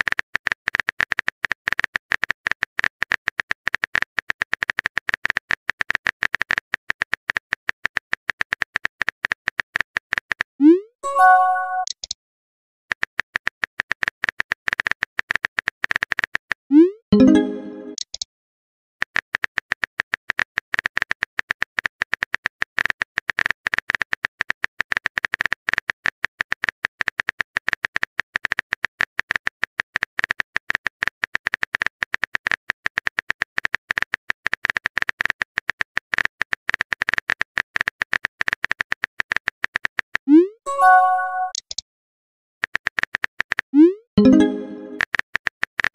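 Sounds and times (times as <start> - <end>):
message sent swoop and chime: 11.0 - 11.9, 17.1 - 18.0, 40.7 - 41.6, 44.2 - 45.0
keyboard typing clicks: 11.0 - 12.2, 14.0 - 18.3, 30.7 - 41.8, 42.6 - 45.9.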